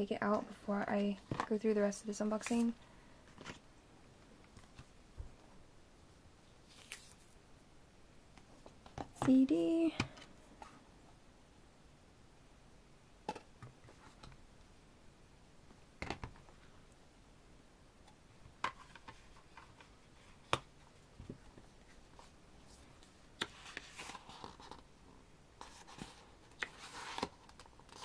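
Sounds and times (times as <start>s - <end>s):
paper pages rustling: 6.6s - 7.4s, 21.2s - 24.8s, 25.6s - 28.0s.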